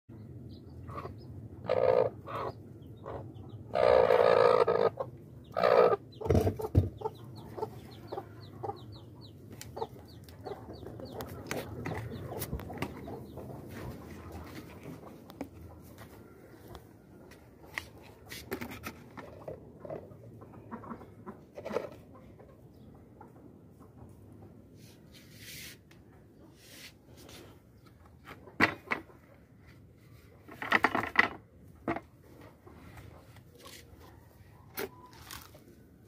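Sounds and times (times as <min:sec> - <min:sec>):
chicks peeping: 0:00.2 - 0:17.4, 0:19.2 - 0:24.6.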